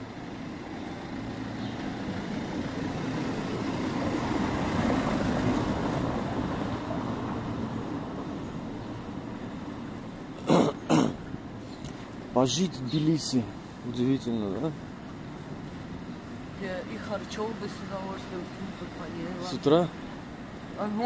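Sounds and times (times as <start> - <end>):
vehicle passing: 0.0 - 9.8
traffic rumble on cobblestones: 0.0 - 21.0.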